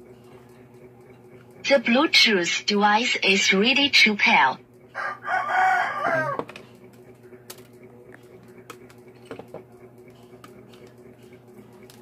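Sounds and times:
low electrical hum: 0.0s - 12.0s
rooster crowing: 4.9s - 6.6s.

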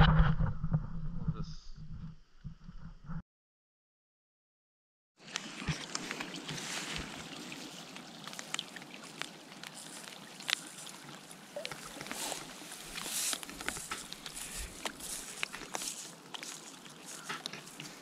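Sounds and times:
paddle splashing water: 5.2s - 18.0s.

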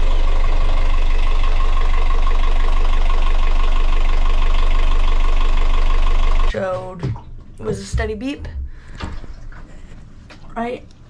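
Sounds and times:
diesel engine idling: 0.0s - 6.5s.

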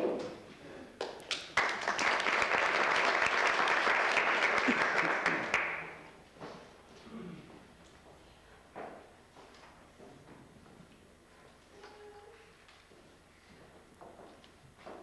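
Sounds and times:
audience applauding: 1.0s - 6.1s.

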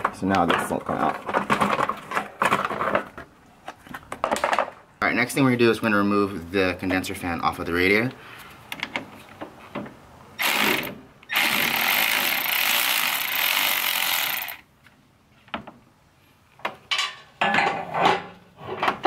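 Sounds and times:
clatter of parts handled: 0.0s - 4.8s
electric ratchet spinning: 10.4s - 14.6s.

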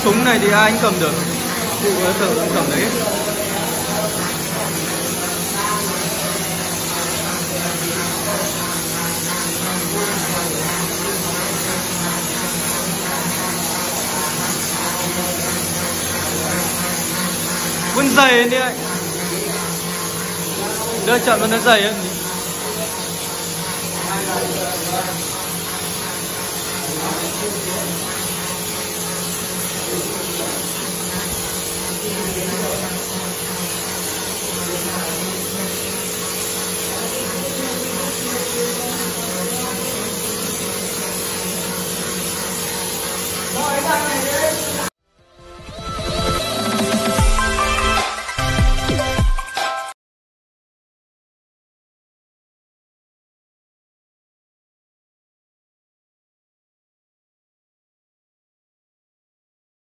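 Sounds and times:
spray gun hissing: 0.0s - 45.0s
steady machine hum: 0.0s - 45.0s.

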